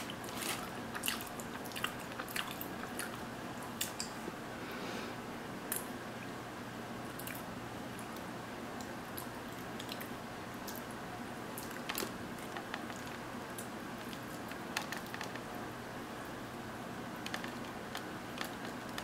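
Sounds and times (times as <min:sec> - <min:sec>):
background hiss: 0:00.0 - 0:19.0.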